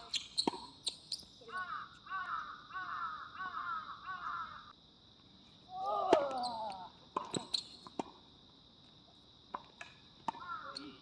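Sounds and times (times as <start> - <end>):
racket hitting tennis ball: 0.2 - 0.8
crow cawing: 1.6 - 4.6.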